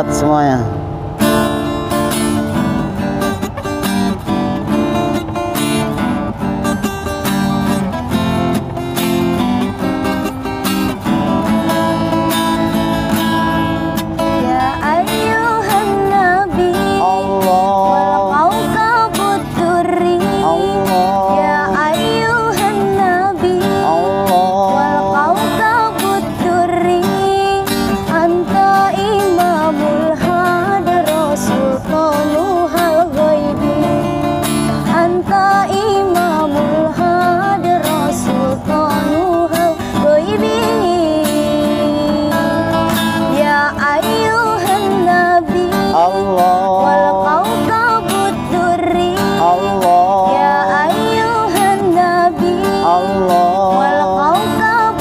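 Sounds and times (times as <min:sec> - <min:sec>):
strummed acoustic guitar: 0:00.0 - 0:55.0
woman singing devotional song: 0:14.3 - 0:55.0.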